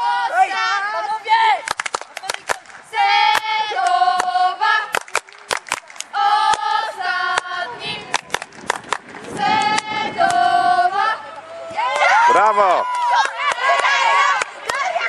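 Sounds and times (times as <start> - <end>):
high voices chanting: 0.0 - 8.5, 9.2 - 15.0
sharp claps: 1.6 - 6.7, 8.1 - 10.4, 12.8 - 14.9.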